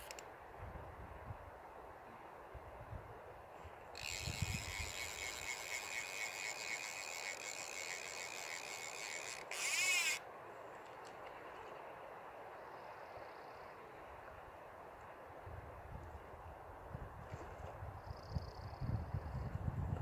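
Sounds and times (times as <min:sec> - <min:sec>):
fly reel clicker ratchet: 0:04.0 - 0:10.2.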